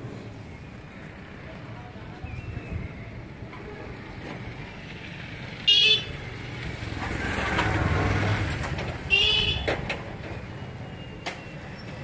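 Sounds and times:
vehicle passing: 6.2s - 9.1s
vehicle horn toot: 9.1s - 9.7s.

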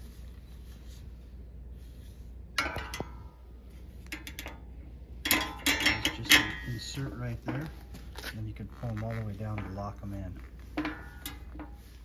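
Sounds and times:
metal shelf beam clinking: 2.5s - 7.8s, 10.6s - 12.0s.

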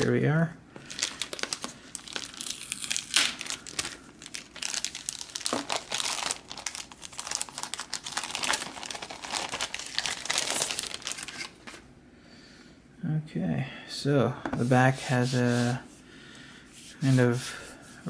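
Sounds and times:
plastic bag crinkling: 0.8s - 11.8s.

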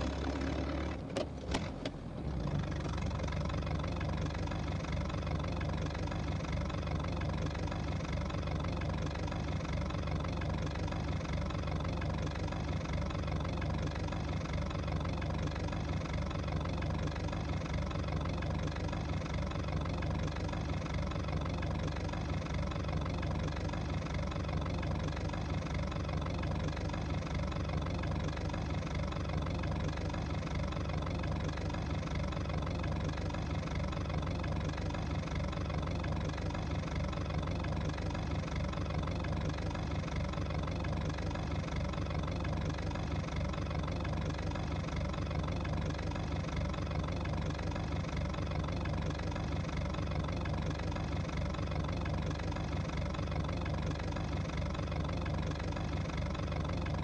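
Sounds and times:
engine humming: 0.0s - 57.0s.

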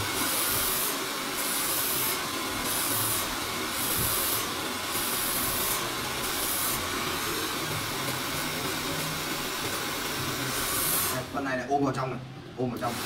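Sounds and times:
hair dryer blowing: 0.0s - 11.4s, 12.8s - 13.0s.

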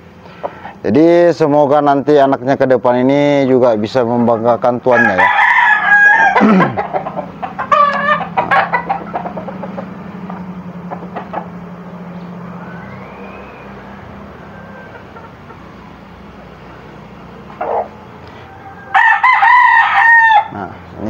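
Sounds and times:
chickens clucking: 0.0s - 1.1s, 2.6s - 21.0s
steady low hum: 0.0s - 19.3s
rooster crowing: 4.8s - 10.4s, 12.5s - 20.8s.

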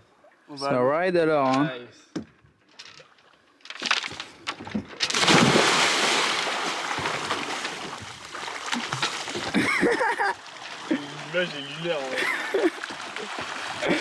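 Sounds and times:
water splashing and rushing: 5.0s - 14.0s.

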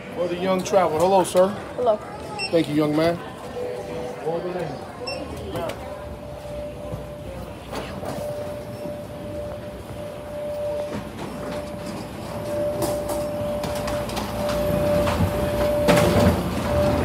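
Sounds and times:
suitcase wheels rumbling: 7.9s - 17.0s.

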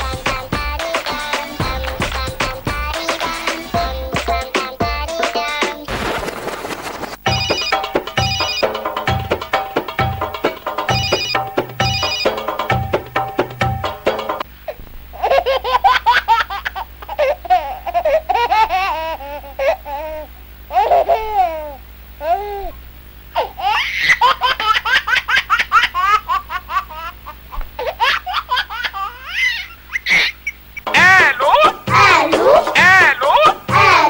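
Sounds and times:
high-pitched laughter: 23.4s - 34.0s.

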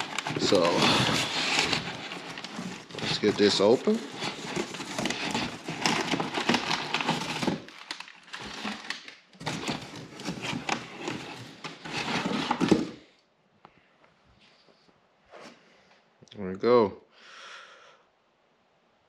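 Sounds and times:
box and packing torn open: 0.0s - 12.9s.

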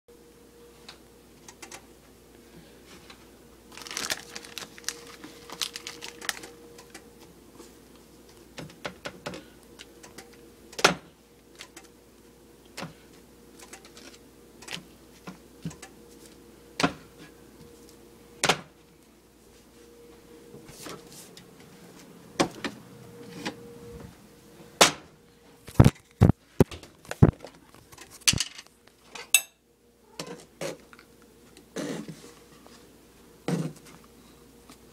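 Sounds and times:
faint steady hum: 0.1s - 34.9s
food crinkling and crackling: 3.7s - 7.0s.

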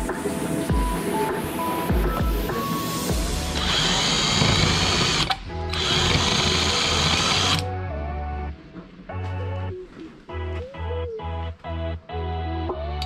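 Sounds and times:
background music: 0.0s - 13.0s
electric drill boring: 3.1s - 7.6s.

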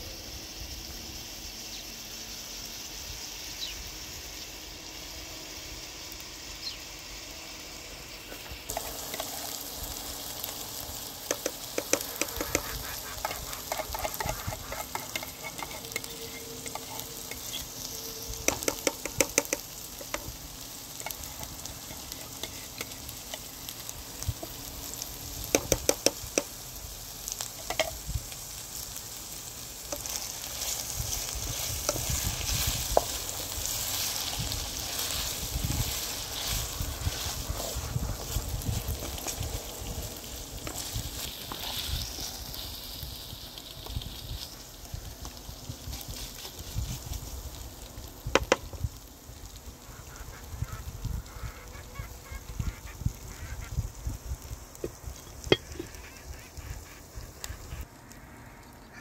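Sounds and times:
food sizzling in a frying pan: 0.0s - 58.1s
wooden spatula scraping a pan: 11.3s - 20.3s, 21.0s - 23.5s, 29.9s - 39.6s, 40.6s - 42.6s.

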